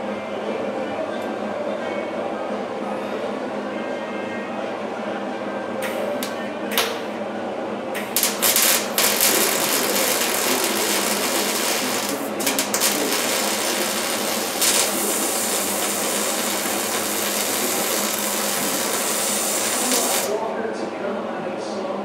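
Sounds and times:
welder crackling sizzle: 0:08.0 - 0:20.4.

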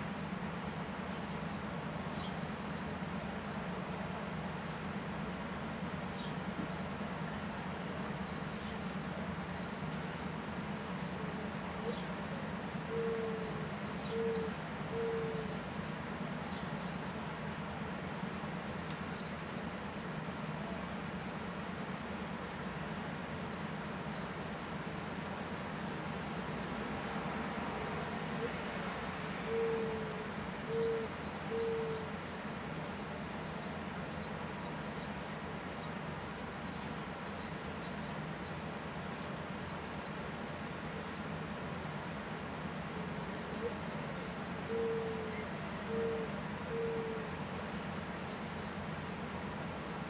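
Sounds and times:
sparrows chirping: 0:00.6 - 0:03.9, 0:05.6 - 0:20.0, 0:23.5 - 0:26.8, 0:27.7 - 0:50.0
mourning dove cooing: 0:10.8 - 0:15.7, 0:28.2 - 0:32.7, 0:43.0 - 0:47.8.

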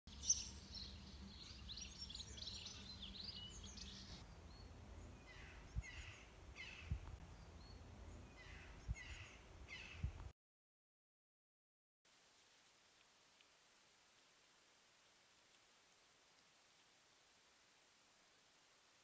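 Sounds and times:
birds twittering: 0:00.1 - 0:10.2.

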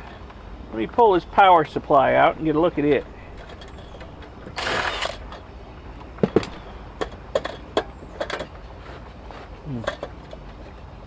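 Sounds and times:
metal parts clicking and knocking: 0:02.9 - 0:05.5, 0:06.2 - 0:09.0
cordless drill backing out screw: 0:03.4 - 0:05.4.

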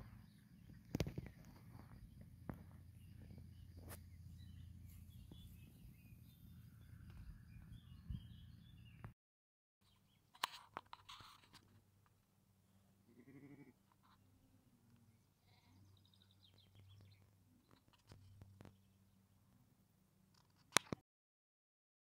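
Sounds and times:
sharp clicks and rustles: 0:10.3 - 0:12.2
sheep bleating: 0:13.0 - 0:13.8.

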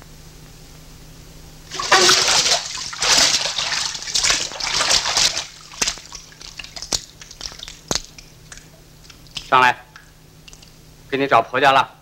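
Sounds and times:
water splashing and sloshing: 0:01.7 - 0:10.8.

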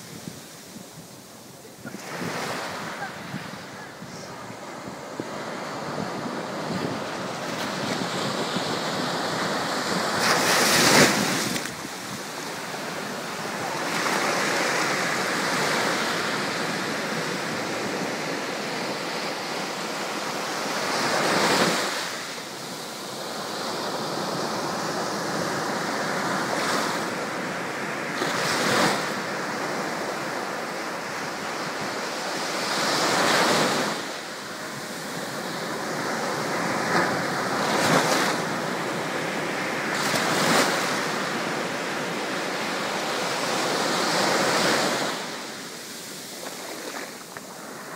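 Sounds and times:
waves crashing: 0:00.0 - 0:47.9.

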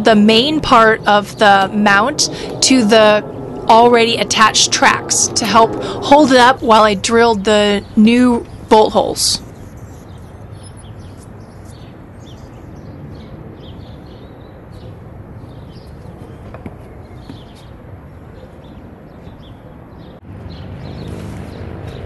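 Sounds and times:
high bird chirps: 0:09.4 - 0:15.9.

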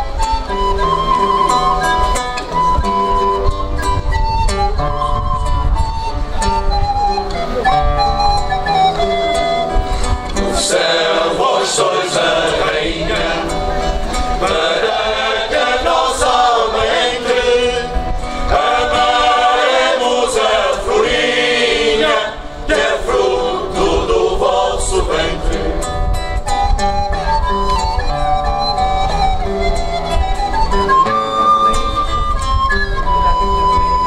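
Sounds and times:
recorder melody: 0:00.0 - 0:12.4, 0:13.1 - 0:23.6, 0:25.5 - 0:34.0
acoustic guitar: 0:00.0 - 0:34.0
choir singing: 0:10.4 - 0:26.1.

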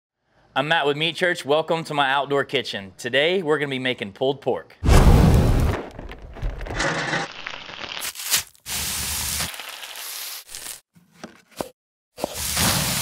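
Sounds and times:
food sizzling on grill: 0:07.5 - 0:10.8.

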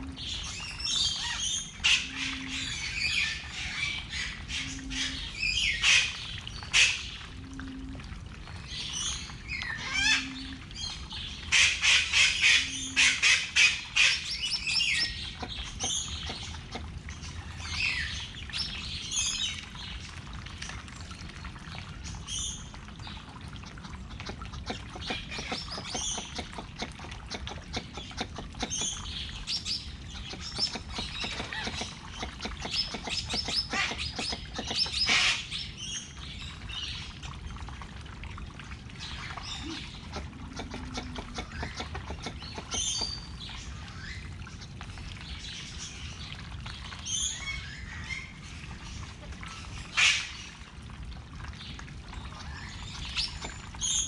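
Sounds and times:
birds chirping: 0:24.2 - 0:36.0.

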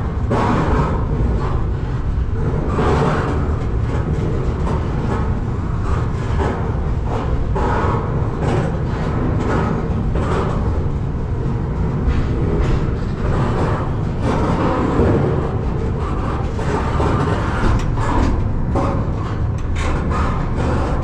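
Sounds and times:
freight train rumbling and rattling: 0:00.0 - 0:21.0.

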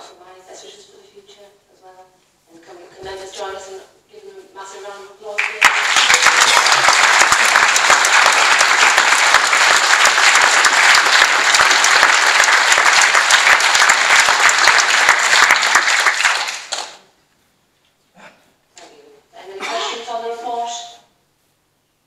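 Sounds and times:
crowd applauding: 0:05.4 - 0:17.0.

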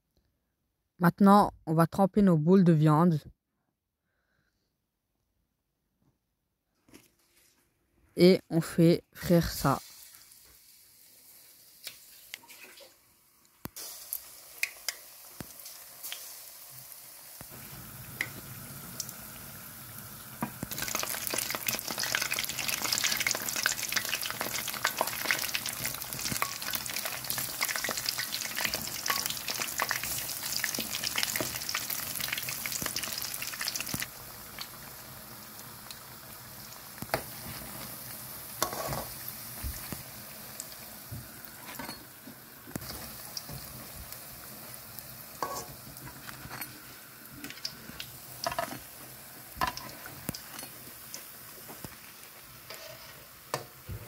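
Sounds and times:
food deep-frying in hot oil: 0:08.8 - 0:54.0.

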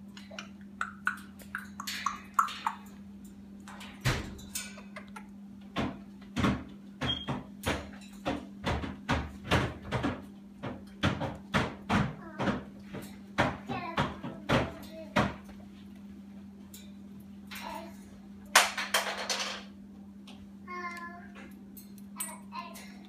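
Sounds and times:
beak and feet knocking on bars: 0:03.6 - 0:15.6.

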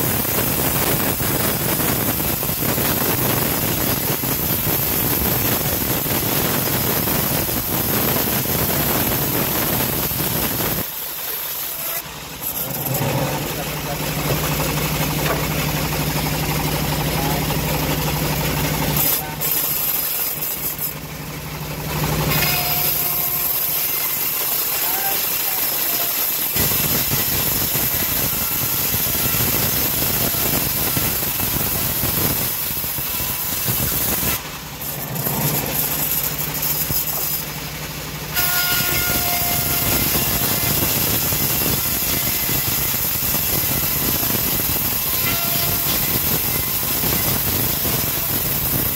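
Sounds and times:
band sawmill ripping wood: 0:22.0 - 0:37.7.

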